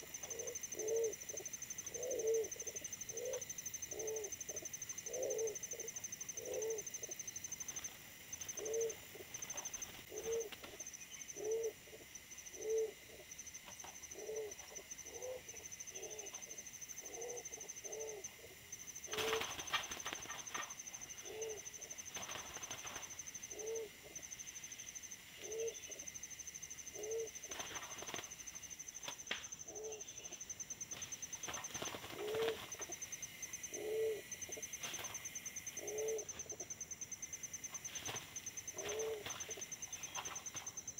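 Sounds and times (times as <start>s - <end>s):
pigeons cooing: 0.0s - 7.2s, 8.5s - 10.8s, 11.4s - 13.4s, 14.0s - 22.7s, 23.4s - 24.3s, 25.4s - 26.1s, 26.9s - 27.8s, 31.7s - 33.0s, 33.7s - 35.1s, 35.8s - 36.7s, 38.0s - 40.3s
wings flapping: 19.1s - 20.8s, 22.1s - 23.2s, 27.5s - 28.4s, 30.9s - 32.8s, 37.9s - 39.6s.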